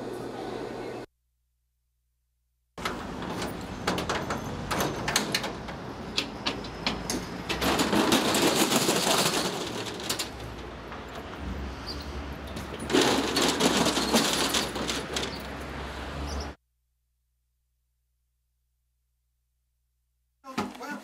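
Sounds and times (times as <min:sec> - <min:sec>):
shutter rattling as it rolls up: 0:12.6 - 0:15.6.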